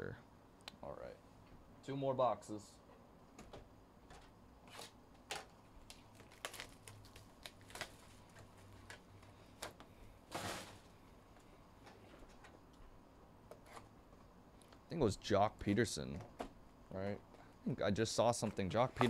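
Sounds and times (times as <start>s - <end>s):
packaging rustle: 4.7s - 9.0s.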